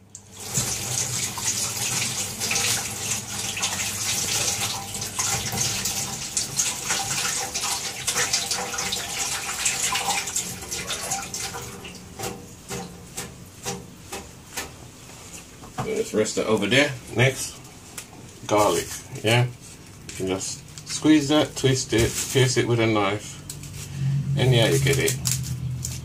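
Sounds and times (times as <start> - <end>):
tap running into metal sink: 9.9 - 14.8.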